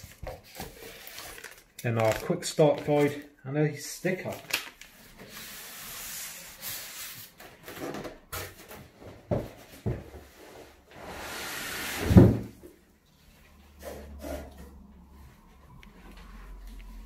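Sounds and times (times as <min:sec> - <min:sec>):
polystyrene and cardboard rustling: 0:00.0 - 0:03.3, 0:04.2 - 0:07.9, 0:10.4 - 0:12.5.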